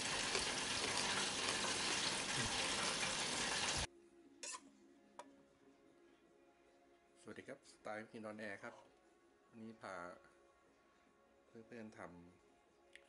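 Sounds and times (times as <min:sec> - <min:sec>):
hot oil sizzling: 0:00.0 - 0:03.9.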